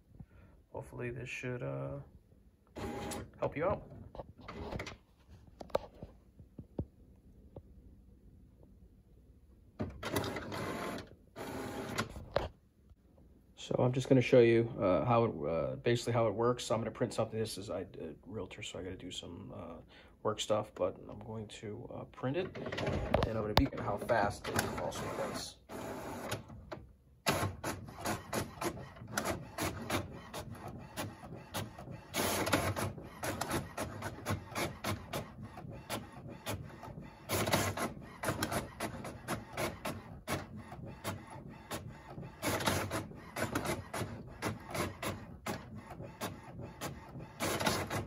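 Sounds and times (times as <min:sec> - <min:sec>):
printer page feed noise: 0:02.8 - 0:03.8, 0:09.8 - 0:12.5, 0:22.4 - 0:48.0
printer mechanical clicks: 0:22.4 - 0:48.0.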